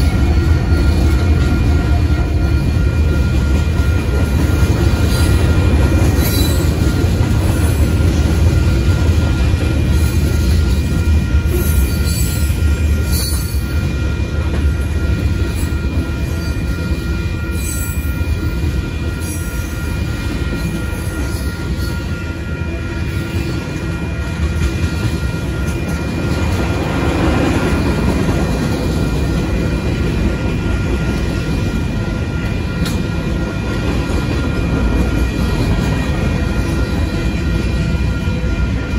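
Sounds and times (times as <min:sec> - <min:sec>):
train wheels rumbling on rail: 0:00.0 - 0:38.9
high wheel squeal: 0:09.9 - 0:14.1.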